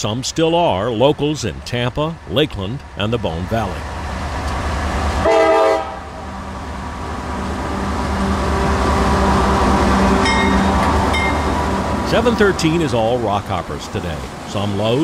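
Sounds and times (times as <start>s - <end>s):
diesel locomotives rumbling past: 0.0s - 15.0s
freight cars rolling by: 0.0s - 15.0s
train horn blast: 5.2s - 6.2s.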